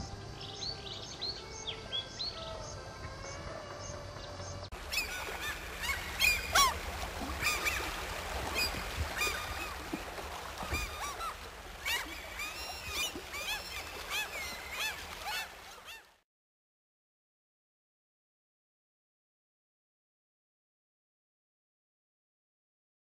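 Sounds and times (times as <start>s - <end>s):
waterbirds calling: 0.0s - 16.2s.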